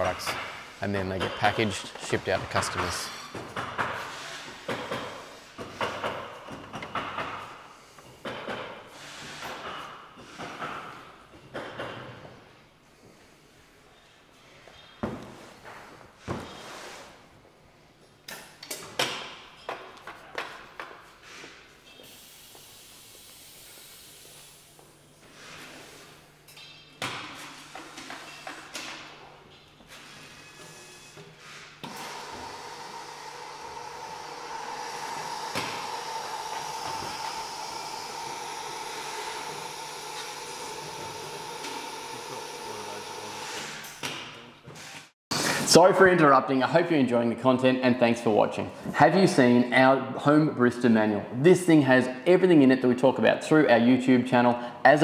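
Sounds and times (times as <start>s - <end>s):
sharp knocks and clatters: 2.3s - 7.5s, 8.2s - 8.8s
high hiss of air: 22.0s - 24.8s, 31.6s - 44.0s.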